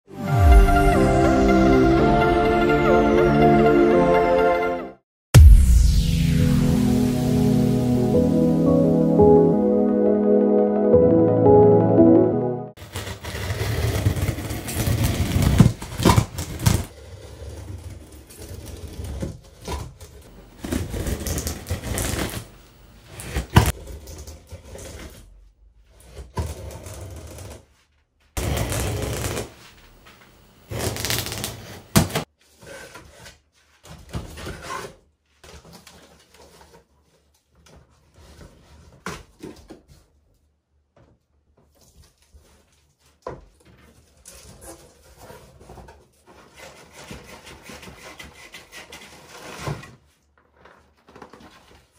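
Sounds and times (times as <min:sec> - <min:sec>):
knife slicing packing tape: 0:12.8 - 0:16.9, 0:20.5 - 0:22.5, 0:28.4 - 0:29.6, 0:30.7 - 0:32.2.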